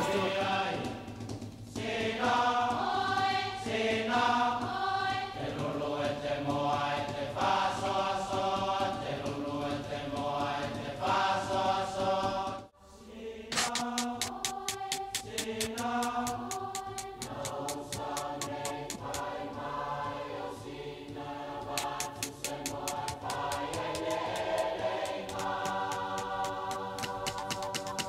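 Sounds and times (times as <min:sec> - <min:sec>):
voices chanting long held notes: 0:00.0 - 0:01.2, 0:01.8 - 0:28.0
even clicking rhythm: 0:13.5 - 0:28.0.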